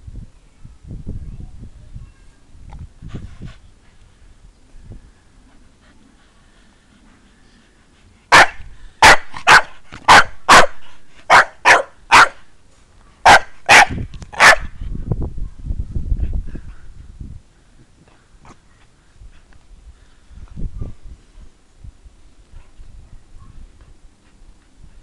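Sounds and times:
dog barking: 0:08.3 - 0:12.4, 0:13.2 - 0:14.7.

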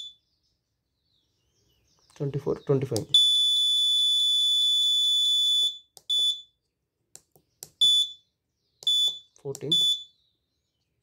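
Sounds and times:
buzzer beeping: 0:07.8 - 0:08.2, 0:08.8 - 0:10.1.

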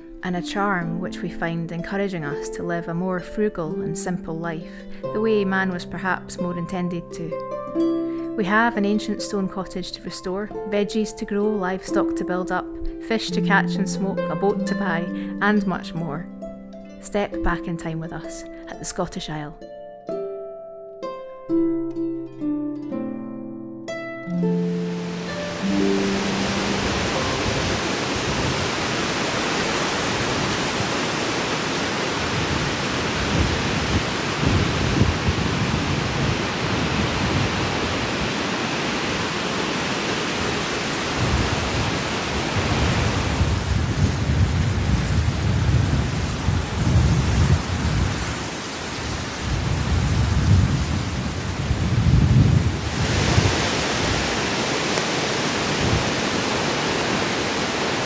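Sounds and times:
heavy rain hissing: 0:24.6 - 0:58.0.

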